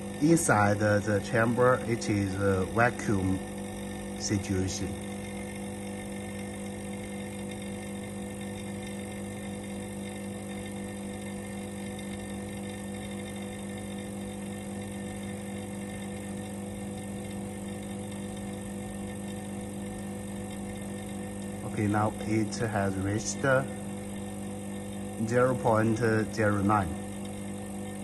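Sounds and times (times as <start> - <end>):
vacuum pump humming: 0.0 - 28.0.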